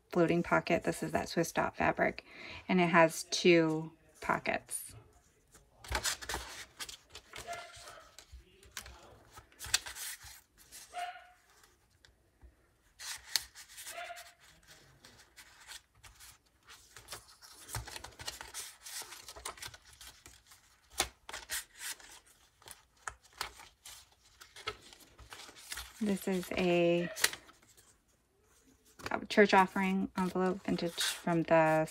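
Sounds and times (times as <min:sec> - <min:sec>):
pages being turned: 0:05.8 - 0:10.9, 0:13.0 - 0:28.0
dog barking: 0:10.9 - 0:11.4.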